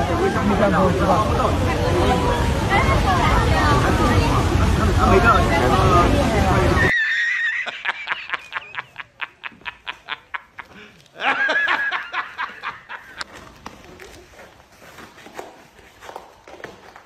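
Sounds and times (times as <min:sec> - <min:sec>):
man laughing rhythmically: 0:07.4 - 0:13.2
rustles and taps: 0:13.0 - 0:17.0.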